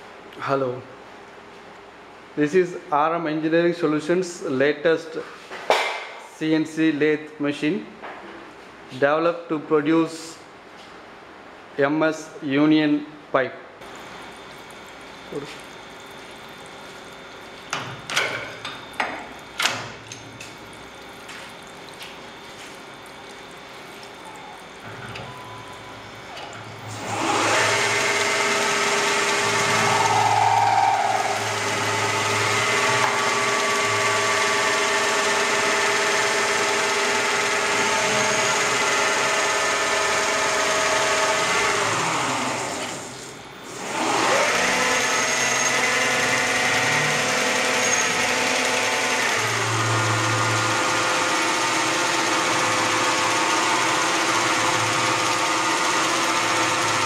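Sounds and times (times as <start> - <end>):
metal cutting and coolant noise: 13.8 - 57.0
lathe spindle whine: 24.2 - 57.0.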